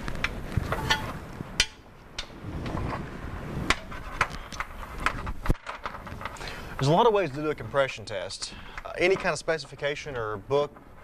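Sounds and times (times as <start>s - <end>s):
metal clicks and knocks: 0.0s - 3.0s, 3.7s - 7.2s, 8.7s - 11.0s.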